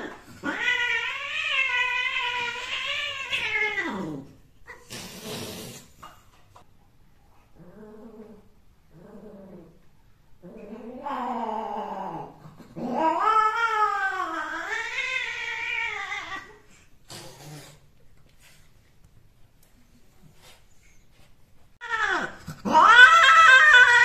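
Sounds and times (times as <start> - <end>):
cat yowling: 21.8 - 24.0.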